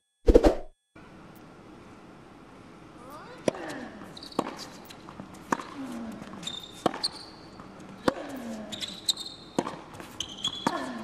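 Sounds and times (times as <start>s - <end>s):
tennis ball bouncing: 3.4s - 11.0s
shoes squeaking on court: 3.5s - 11.0s
racket striking tennis ball: 5.4s - 5.8s, 9.5s - 10.8s.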